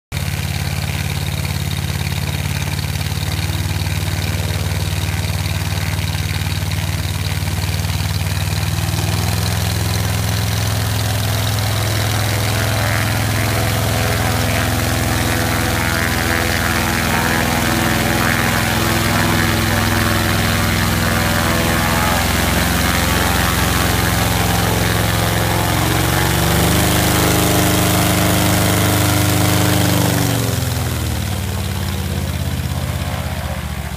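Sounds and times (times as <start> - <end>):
aircraft engine and propeller running: 0.1 - 33.9.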